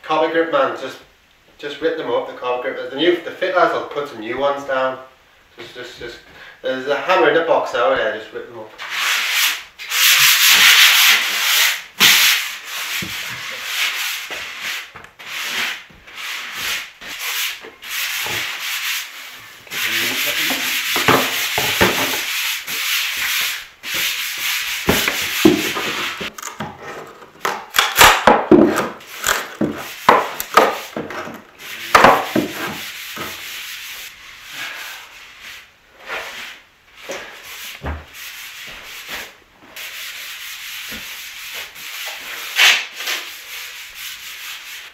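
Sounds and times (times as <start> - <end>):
sandpaper rubbing on wood: 8.8 - 26.3, 37.4 - 44.9.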